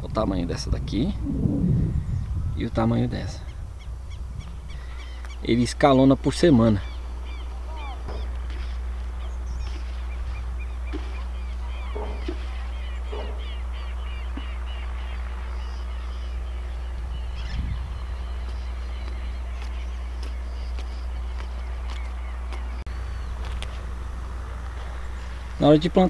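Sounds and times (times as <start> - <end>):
birds chirping: 0.0 - 26.0
steady low hum: 0.0 - 26.0.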